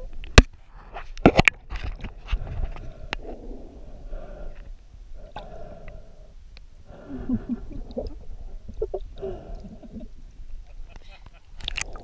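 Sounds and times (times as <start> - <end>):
muffled underwater gurgling: 6.9 - 10.7.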